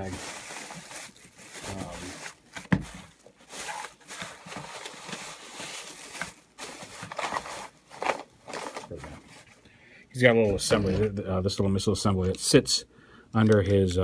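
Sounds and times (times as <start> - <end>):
rummaging through a bag: 0.0 - 9.6.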